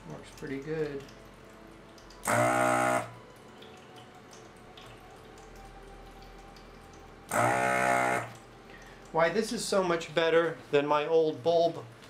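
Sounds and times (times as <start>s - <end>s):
water fountain trickling: 0.0s - 12.0s
vacuum pump buzzing: 2.2s - 3.2s, 7.3s - 8.4s.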